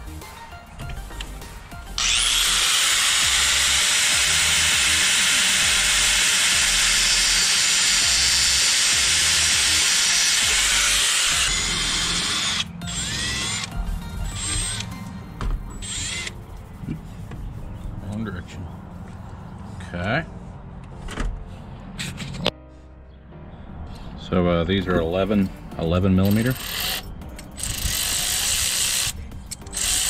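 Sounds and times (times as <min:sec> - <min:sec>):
cutoff wheel grinding metal: 0:02.0 - 0:15.0, 0:15.7 - 0:16.4, 0:26.2 - 0:30.0.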